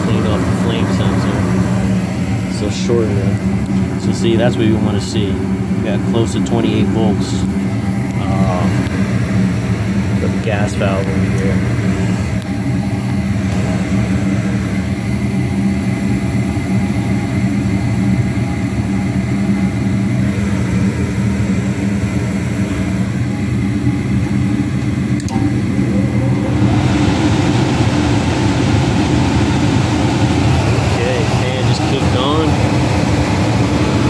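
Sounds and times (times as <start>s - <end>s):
gas furnace humming: 0.0s - 34.0s
broad rushing noise: 25.4s - 34.0s.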